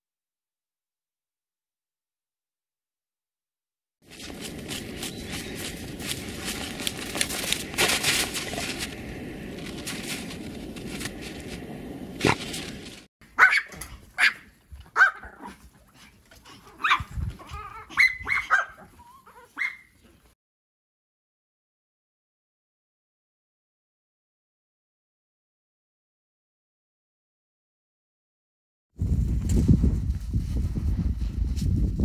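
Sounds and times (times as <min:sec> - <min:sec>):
dog paws scraping snow: 0:04.0 - 0:13.1
small dogs yapping: 0:13.4 - 0:20.2.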